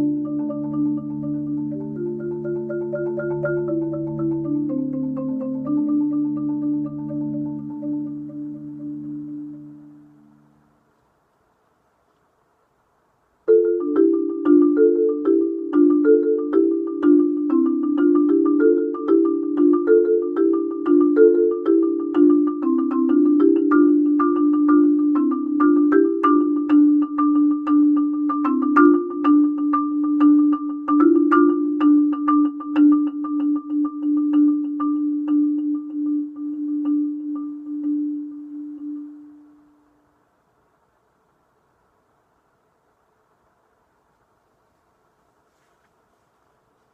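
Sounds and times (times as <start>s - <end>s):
marimba: 0.0s - 10.9s, 13.5s - 40.0s.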